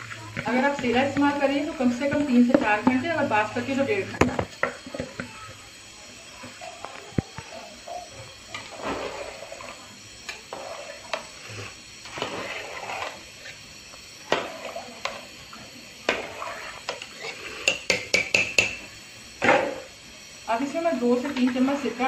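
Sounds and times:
liquid sloshing in a pot: 8.5 - 15.3, 16.0 - 18.3
metal spoon scraping a pot: 10.5 - 13.6, 16.1 - 18.8.

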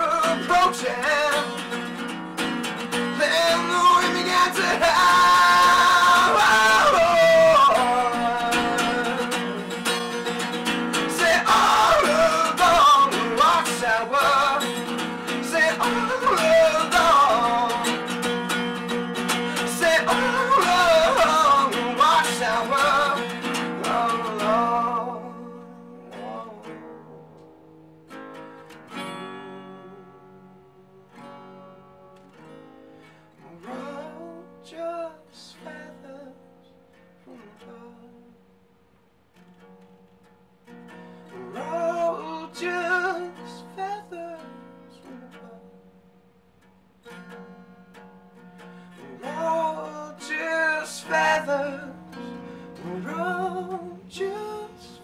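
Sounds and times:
person singing: 0.0 - 1.7, 3.0 - 18.5, 19.1 - 27.4, 41.3 - 45.7, 49.0 - 55.0
acoustic guitar: 0.0 - 55.0.

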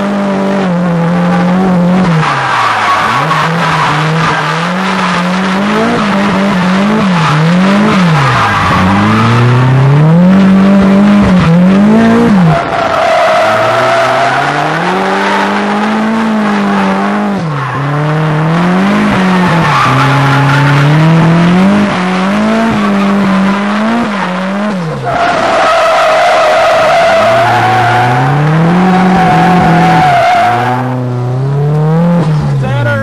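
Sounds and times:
car engine revving: 0.0 - 33.0
tyres squealing: 22.6 - 30.9.

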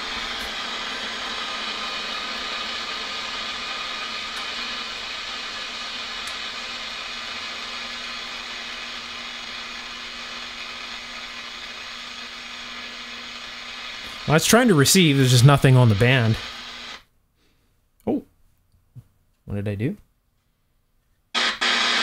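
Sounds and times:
radio static: 13.9 - 17.0, 21.4 - 22.0.

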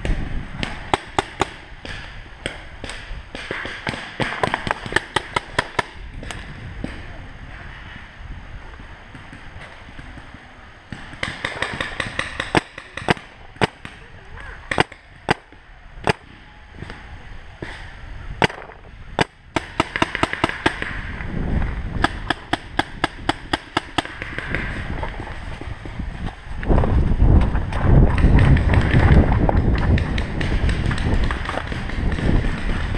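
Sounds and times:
paintball markers firing: 0.6 - 7.0, 10.9 - 14.1, 14.7 - 17.0, 17.6 - 21.1, 22.0 - 25.9, 28.1 - 32.9.

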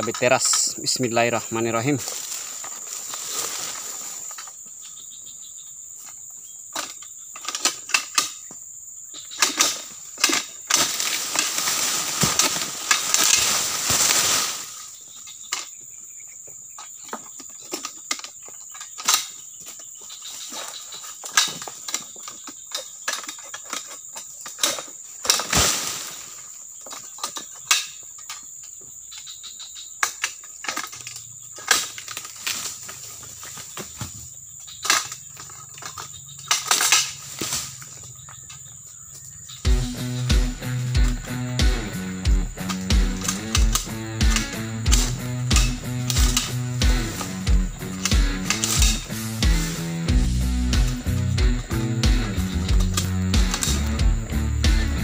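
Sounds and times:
sickle chopping fronds: 0.0 - 4.7, 9.2 - 15.9, 16.6 - 29.3, 30.0 - 55.0
high insect drone: 0.0 - 55.0
rustling crash of leaves: 1.8 - 4.4, 9.5 - 15.2, 25.2 - 26.5, 36.6 - 38.0.

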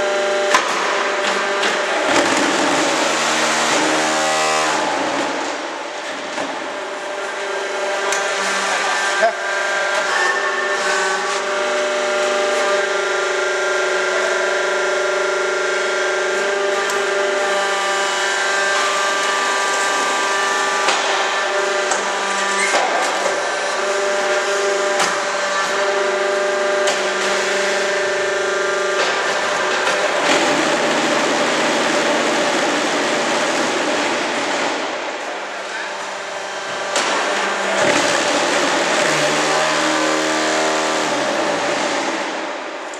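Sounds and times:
hydraulic power unit whine: 0.0 - 42.9
harsh machine rattle: 16.4 - 42.9.

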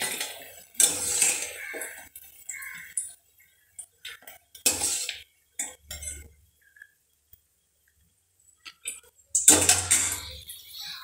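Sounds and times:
spoon scraping a frying pan: 0.0 - 3.2, 4.1 - 6.8, 8.8 - 11.0.

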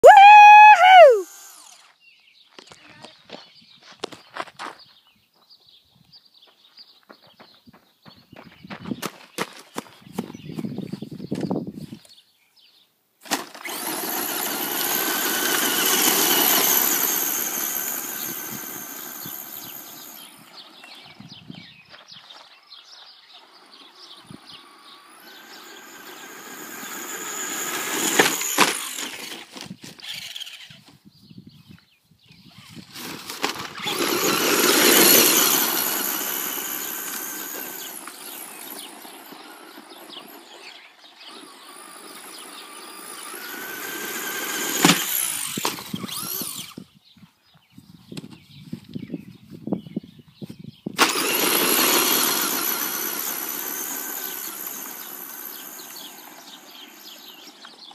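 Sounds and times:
model truck motor whine: 1.2 - 1.9, 13.4 - 21.2, 23.4 - 29.3, 32.8 - 46.8, 51.0 - 57.9
tyres crunching on gravel: 2.5 - 5.5, 21.8 - 24.0.

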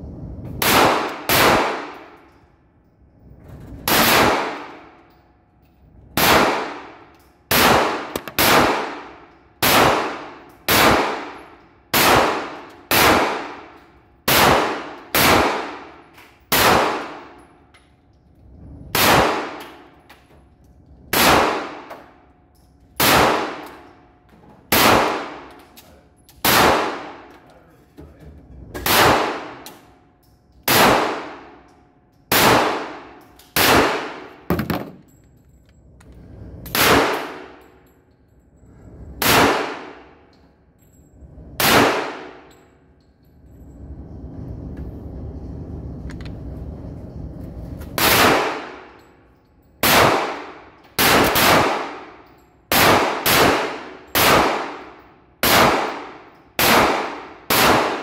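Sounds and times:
echoing gunshots: 0.6 - 2.2, 3.8 - 5.0, 6.2 - 17.4, 18.9 - 19.9, 21.1 - 22.0, 23.0 - 23.7, 24.7 - 25.5, 26.4 - 27.3, 28.8 - 29.6, 30.6 - 31.5, 32.3 - 35.0, 36.7 - 37.6, 39.2 - 40.2, 41.6 - 42.5, 48.0 - 49.0, 49.8 - 58.0.

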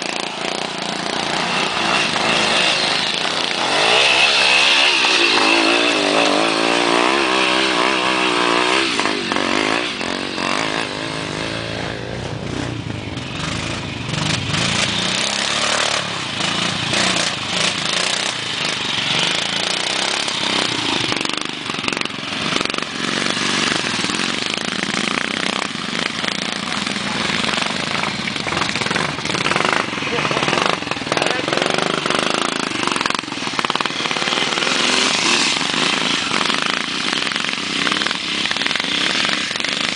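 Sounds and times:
motorcycle engines revving: 0.0 - 39.9.

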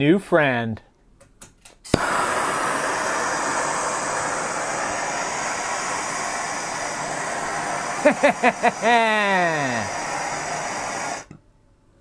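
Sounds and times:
gas torch flame hissing: 1.9 - 11.4.

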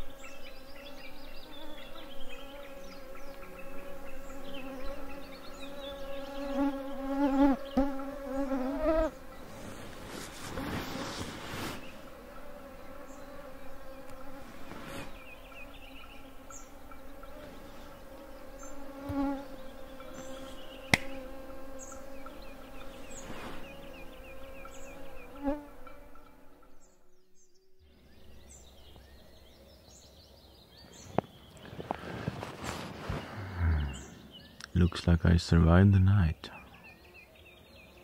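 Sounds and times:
mosquitoes whining: 0.0 - 27.8, 33.0 - 34.4
bird calls: 0.0 - 38.0
sharp click: 20.9 - 21.2.

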